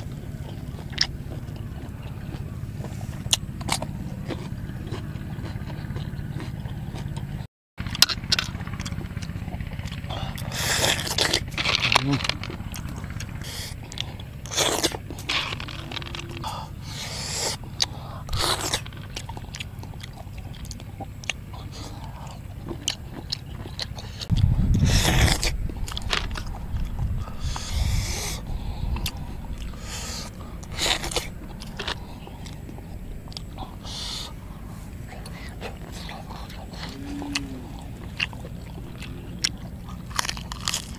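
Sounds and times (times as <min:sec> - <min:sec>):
person chewing and sucking: 0:00.0 - 0:40.9
wind rumbling on microphone: 0:08.2 - 0:40.2.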